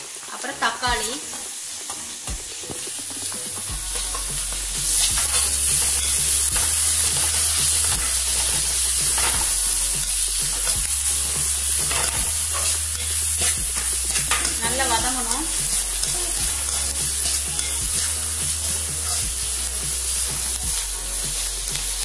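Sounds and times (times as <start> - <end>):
vegetables sizzling in hot oil: 0.0 - 22.0
spatula scraping pan: 1.2 - 22.0.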